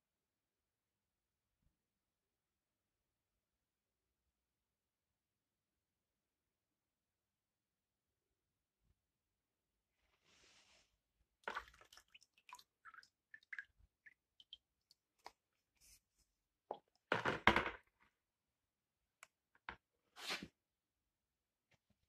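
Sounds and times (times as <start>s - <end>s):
water splashing in a plastic bucket: 11.4s - 15.4s.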